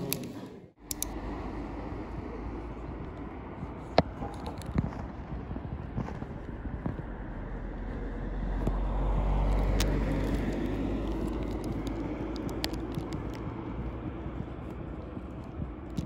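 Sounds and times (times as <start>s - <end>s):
light clicks: 0.1s - 1.2s
vehicle passing: 0.8s - 16.0s.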